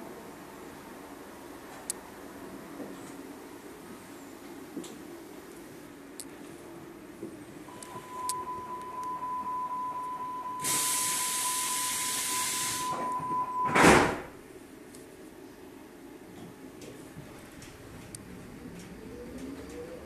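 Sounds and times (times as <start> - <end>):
high warning tone: 7.7 - 14.0
hiss of air: 10.6 - 13.1
train doors thudding shut: 10.6 - 14.4.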